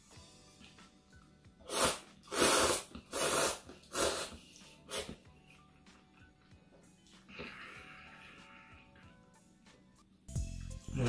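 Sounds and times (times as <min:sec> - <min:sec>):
person slurping noodles: 0:01.7 - 0:05.2.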